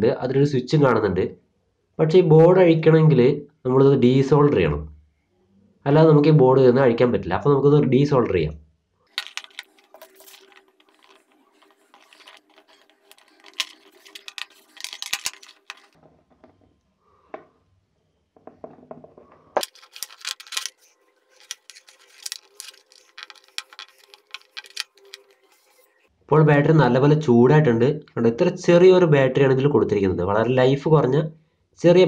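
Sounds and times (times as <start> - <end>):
small metallic clicks and scrapes: 9.1 - 16.0, 19.6 - 26.0.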